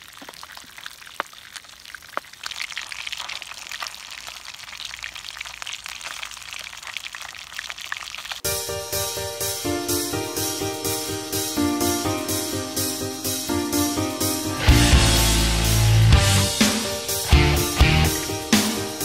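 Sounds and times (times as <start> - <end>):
fish sizzling in hot oil: 0.0 - 8.4
music: 8.4 - 19.0.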